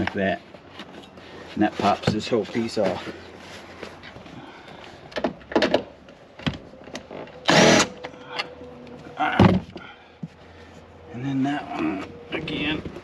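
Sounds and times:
cordless drill spinning: 7.5 - 7.9.

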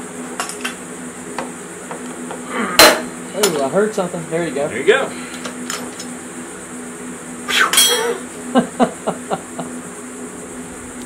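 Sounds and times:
steel hand tools clinking: 7.7 - 8.1.

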